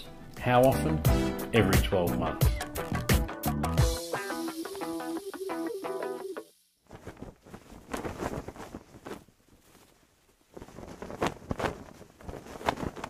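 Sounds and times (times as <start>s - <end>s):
cloth flag flapping: 6.8s - 13.0s.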